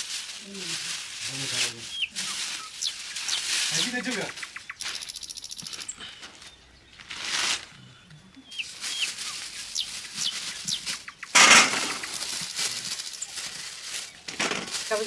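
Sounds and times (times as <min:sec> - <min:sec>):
plastic bag rustling and crinkling: 0:00.0 - 0:04.2, 0:07.0 - 0:07.8, 0:08.5 - 0:15.0.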